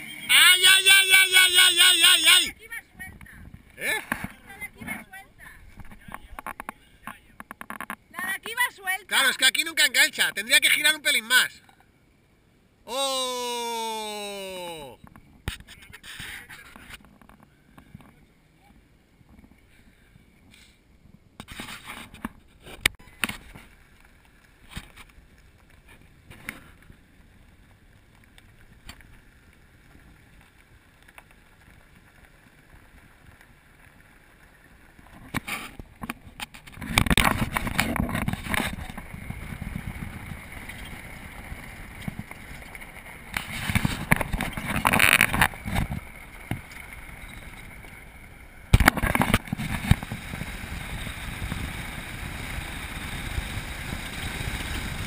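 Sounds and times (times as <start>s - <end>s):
vehicle driving off-road: 0.0s - 8.4s, 22.2s - 55.0s.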